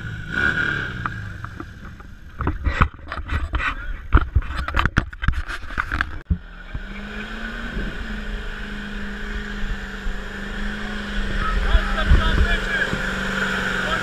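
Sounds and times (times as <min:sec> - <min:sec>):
truck engine droning: 0:00.0 - 0:04.2, 0:05.8 - 0:14.0
distorted burnout noise: 0:06.0 - 0:14.0.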